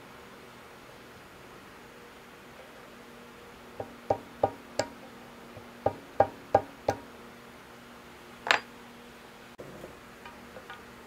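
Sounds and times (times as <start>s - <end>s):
mallet tapping metal with ringing: 3.8s - 5.0s, 5.8s - 7.1s.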